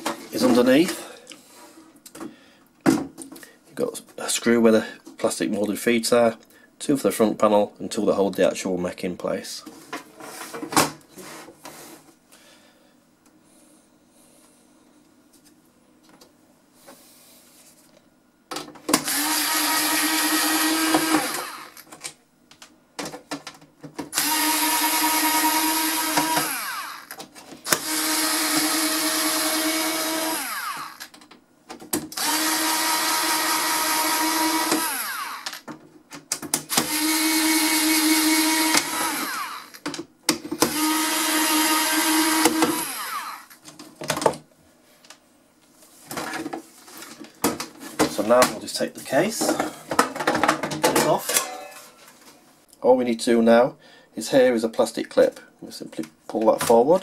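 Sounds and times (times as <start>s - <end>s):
electric screwdriver motor whine: 19.0s - 21.9s, 24.2s - 31.1s, 32.2s - 35.6s, 36.7s - 39.8s, 40.6s - 43.6s.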